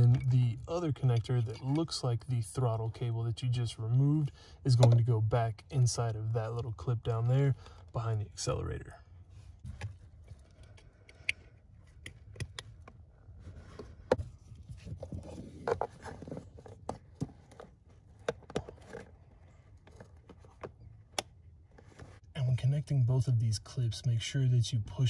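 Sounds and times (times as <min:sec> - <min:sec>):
cables scraping and rustling: 0:09.3 - 0:22.3.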